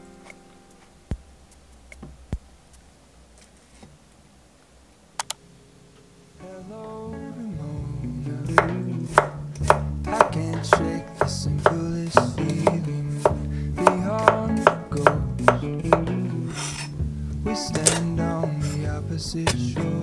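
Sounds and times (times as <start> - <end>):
knife slicing on wooden board: 9.1 - 15.6, 16.5 - 16.9.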